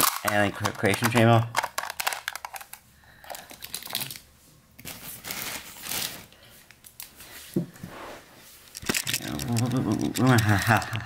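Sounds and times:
plastic toys rustling and scraping: 0.0 - 6.3, 7.0 - 10.9.

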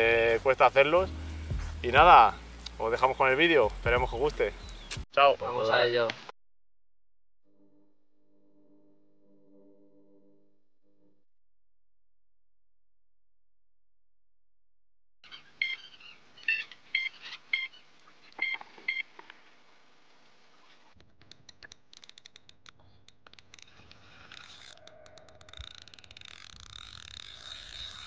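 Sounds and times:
bite alarm beeps: 18.4 - 19.1.

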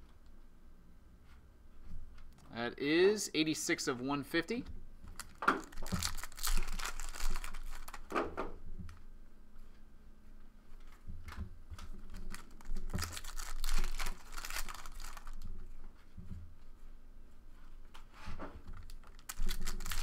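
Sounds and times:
wrapper crinkling and tearing: 5.1 - 8.2, 12.0 - 15.6, 18.8 - 20.0.

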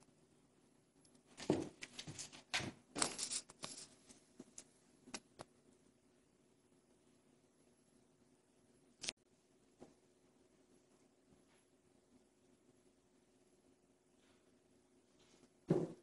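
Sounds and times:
kitten landing thump: 15.7 - 16.0.

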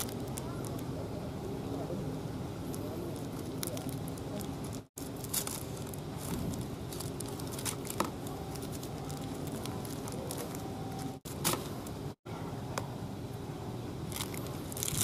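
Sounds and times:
plastic sachets crinkling: 0.0 - 0.9, 3.1 - 11.2, 14.1 - 15.0.

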